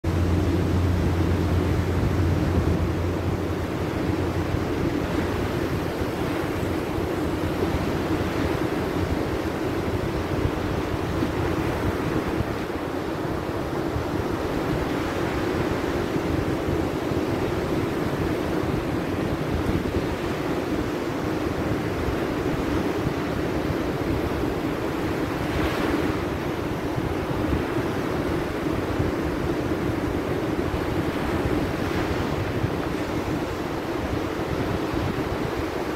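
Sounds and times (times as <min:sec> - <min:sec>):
low rumble: 0:00.0 - 0:06.2
waves breaking on beach: 0:00.0 - 0:35.9
wind buffeting microphone: 0:00.0 - 0:35.9.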